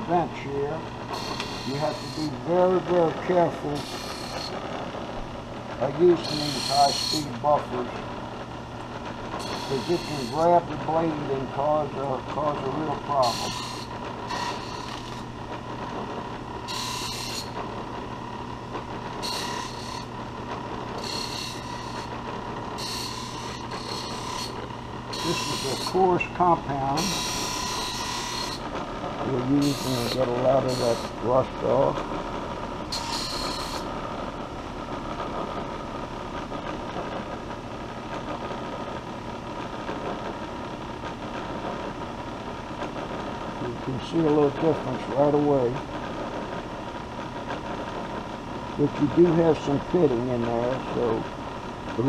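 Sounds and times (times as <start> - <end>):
buffing wheel motor running: 0.0 - 4.6, 9.3 - 15.4, 18.4 - 31.4
electric bench buffer humming: 0.0 - 52.0.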